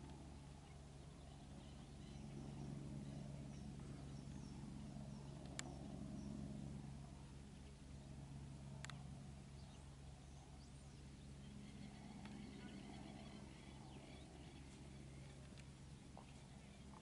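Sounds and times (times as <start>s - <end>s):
steady low hum: 0.0s - 17.0s
faint bird chirps: 9.5s - 17.0s.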